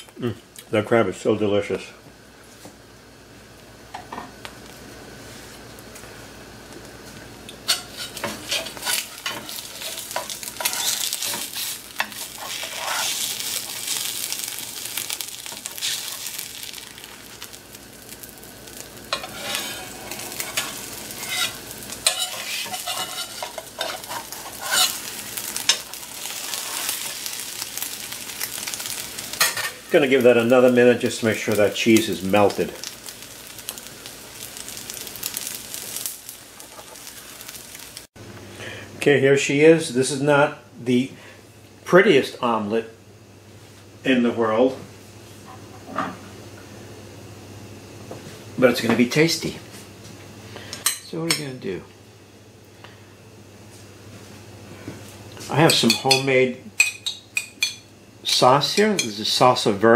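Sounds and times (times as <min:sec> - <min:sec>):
omelette sizzling: 0:04.5 - 0:38.2
spatula scraping pan: 0:07.6 - 0:14.0, 0:19.1 - 0:27.2.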